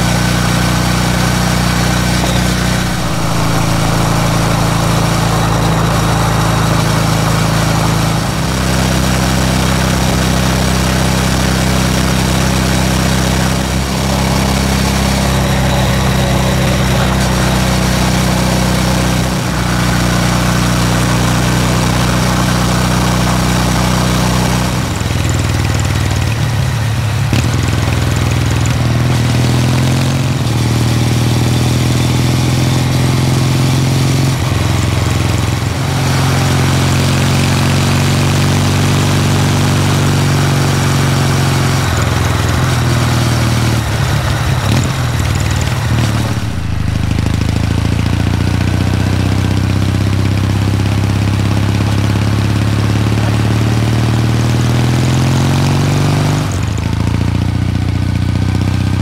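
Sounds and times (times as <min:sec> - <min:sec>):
steady rushing noise: 0:00.0 - 0:27.1, 0:39.8 - 0:50.1
motorcycle engine running: 0:00.0 - 0:59.0.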